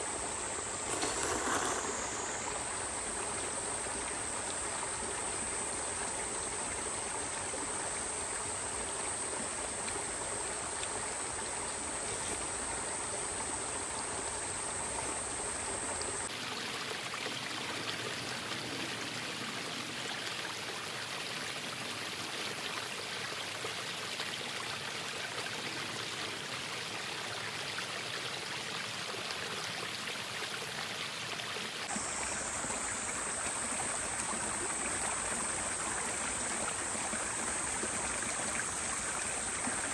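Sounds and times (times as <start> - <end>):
flowing water rushing: 0.7 - 5.0, 16.2 - 39.9.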